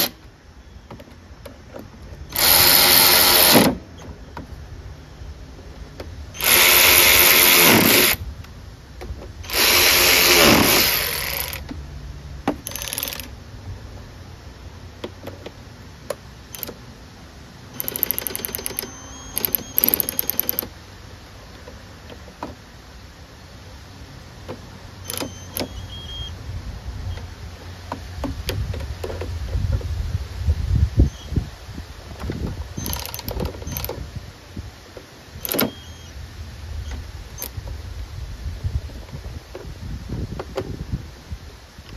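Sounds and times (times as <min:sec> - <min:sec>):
cordless drill whirring: 0:02.3 - 0:03.8, 0:06.4 - 0:08.2, 0:09.5 - 0:11.6
rapid clicking: 0:17.8 - 0:20.7.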